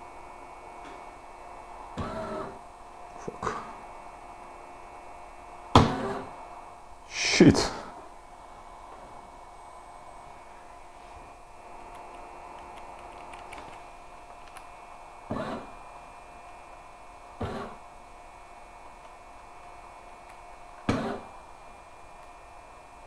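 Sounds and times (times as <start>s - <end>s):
steady high whine: 0.0s - 23.0s
robot arm motor whirs: 2.0s - 2.6s, 5.8s - 6.3s, 15.3s - 15.7s, 17.4s - 17.8s, 20.9s - 21.4s
keyboard clicks: 11.9s - 13.8s.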